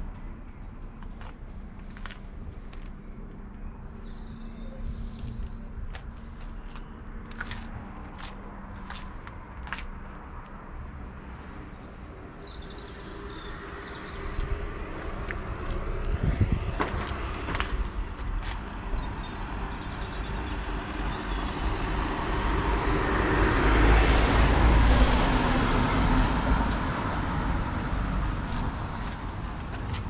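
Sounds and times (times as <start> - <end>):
vehicle passing: 21.6 - 30.0.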